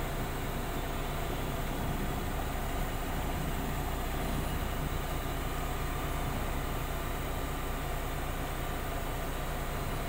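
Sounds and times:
diesel engine humming: 0.0 - 10.0.

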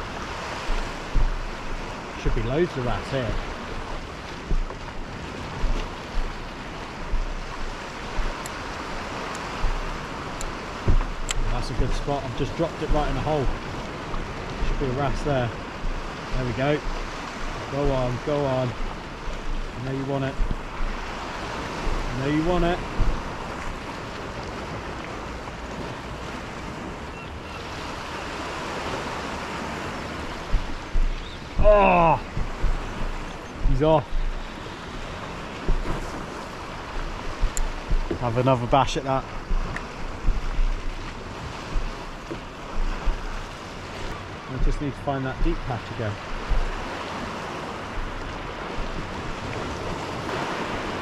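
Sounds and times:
water lapping at a kayak: 0.0 - 51.0
wind buffeting microphone: 0.0 - 51.0
faint high ticks: 8.2 - 8.6, 9.2 - 11.5, 37.0 - 38.2, 39.4 - 43.3.

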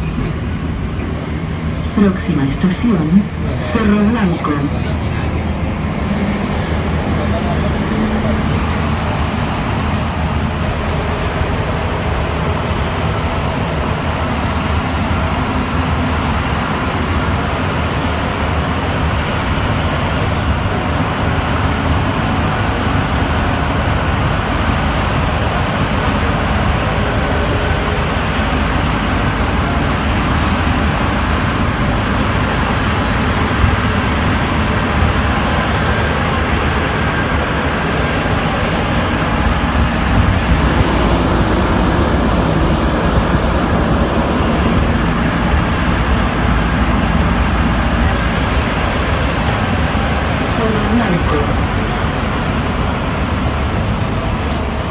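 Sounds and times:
metro train rumbling in tunnel: 0.0 - 54.9.

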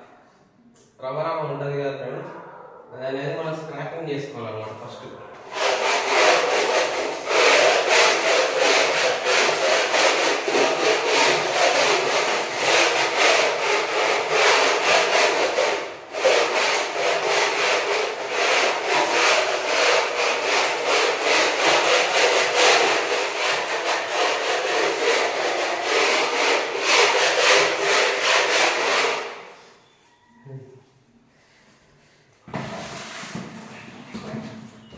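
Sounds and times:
putty blade scraping wall: 5.4 - 29.8, 32.5 - 34.8.

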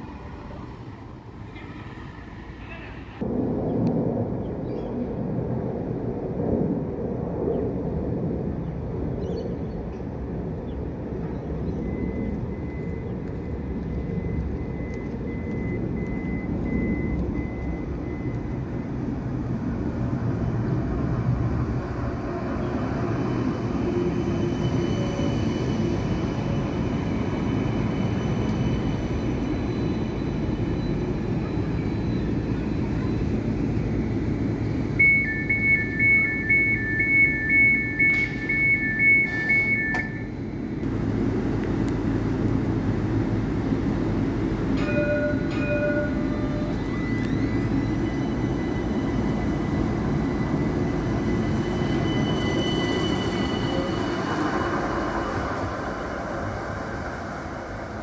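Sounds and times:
tram wheels rumbling: 0.0 - 58.0
two-tone door warning beeping: 11.7 - 19.0, 30.0 - 40.8, 44.7 - 55.6.

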